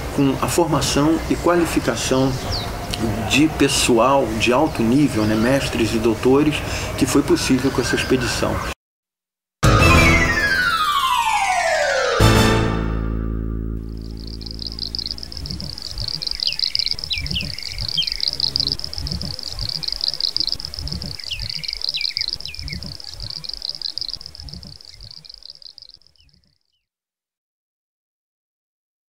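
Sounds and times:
birds calling: 0.0 - 8.8, 13.9 - 26.5
low rumbles: 13.8 - 25.1
high rapidly pulsing trill: 13.8 - 25.9.

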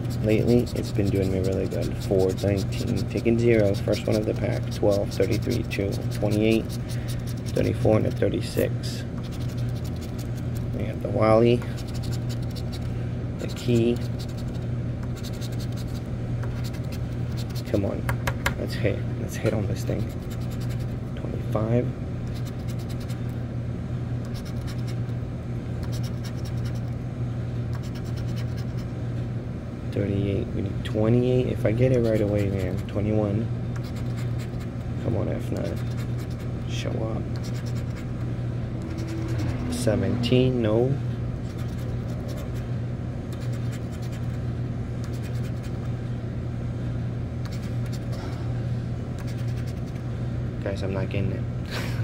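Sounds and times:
lottery ticket being scratched: 0.0 - 10.8, 11.7 - 17.8, 19.8 - 21.0, 22.3 - 23.2, 24.3 - 25.0, 25.8 - 26.9, 27.8 - 28.9, 31.9 - 33.1, 33.8 - 36.5, 37.3 - 38.2, 38.8 - 39.8, 41.4 - 42.7, 43.3 - 44.4, 45.0 - 45.9, 47.5 - 48.1, 49.2 - 50.0
low hum: 0.0 - 52.0.

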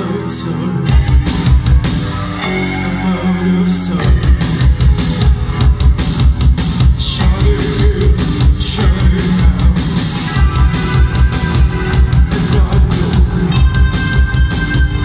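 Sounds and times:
held bass notes: 0.0 - 15.0
post-punk band playing live: 0.0 - 15.0
fast kick-drum beat: 4.0 - 15.0.

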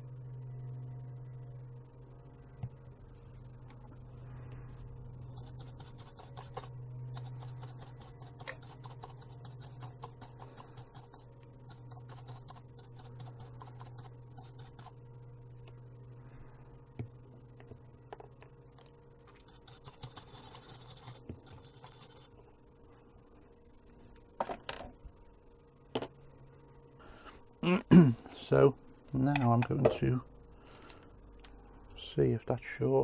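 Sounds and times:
steady low hum: 0.0 - 33.0
scrubbing circuit board: 5.2 - 15.0.

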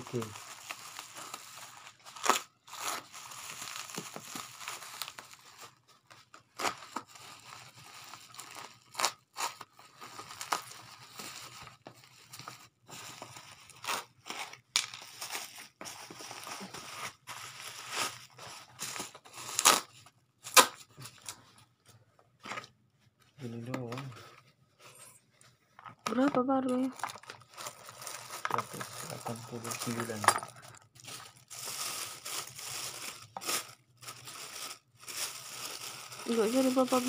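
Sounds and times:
plastic wrapping crinkling: 0.0 - 21.9, 23.0 - 37.0
tape ripping: 18.9 - 20.9.

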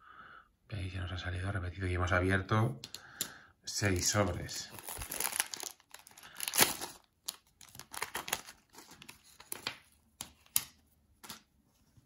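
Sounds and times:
plastic pack tearing and crinkling: 4.0 - 10.7.

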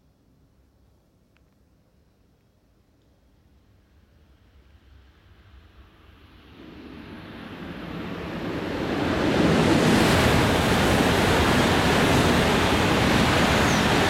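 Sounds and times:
high-speed train passing: 4.8 - 14.0.

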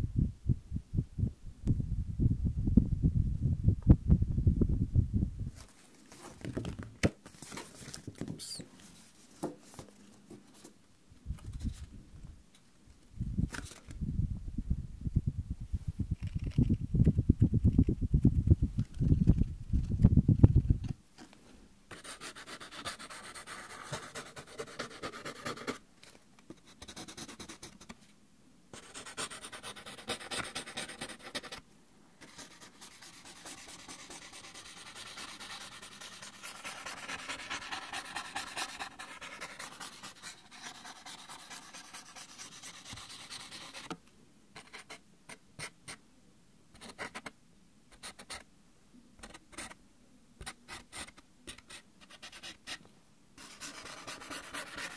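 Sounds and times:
paper rustling: 5.6 - 10.7.

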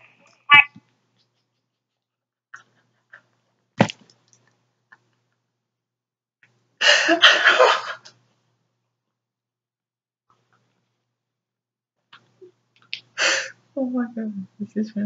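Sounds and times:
puffs of breath: 13.2 - 13.6.

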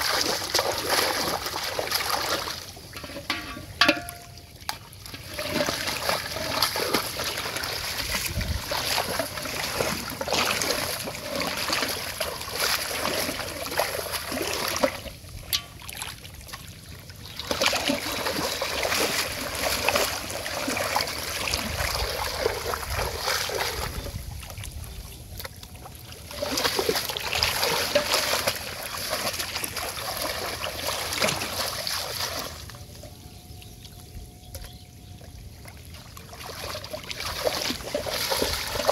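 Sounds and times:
wading through shallow water: 0.0 - 38.9.

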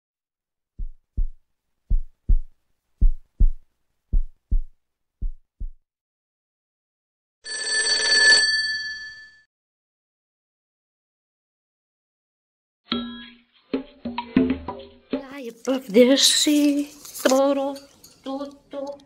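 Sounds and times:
heartbeat double thumps: 0.8 - 5.9.

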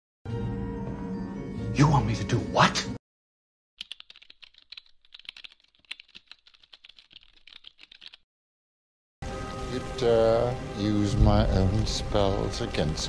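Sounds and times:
keyboard key clicks: 3.8 - 8.2.

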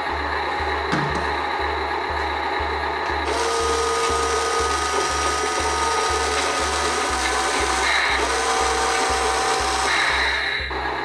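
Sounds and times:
background music with low beat: 0.0 - 11.0
small electric motor whining: 3.2 - 11.0.

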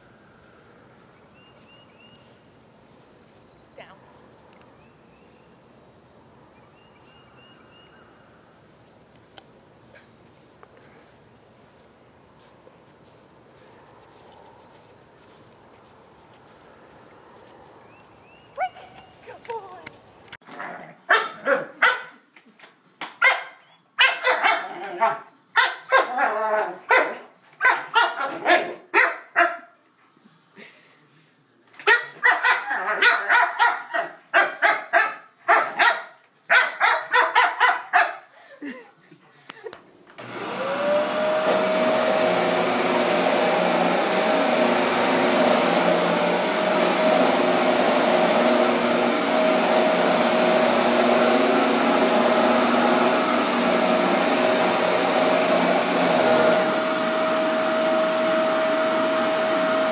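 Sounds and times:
dog barking: 21.1 - 22.2, 23.2 - 29.8, 31.9 - 38.3
vacuum cleaner whine: 40.2 - 59.9.

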